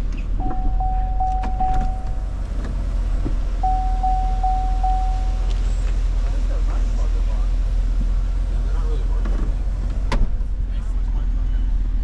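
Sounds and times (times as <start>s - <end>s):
steady low rumble: 0.0s - 12.0s
car warning chime dinging: 0.4s - 2.5s, 3.6s - 5.7s.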